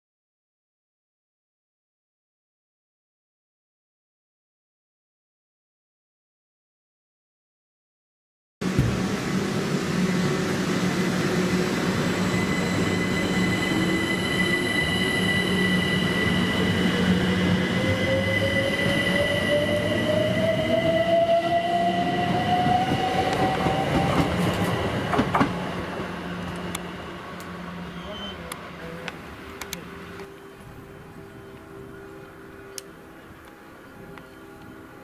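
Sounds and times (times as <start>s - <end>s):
high train whine: 8.6s - 35.0s
train rumbling: 8.6s - 35.0s.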